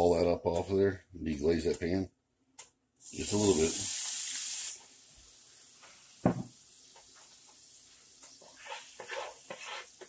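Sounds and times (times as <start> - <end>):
knock: 6.2 - 6.5
wooden spoon scraping a skillet: 7.0 - 10.0.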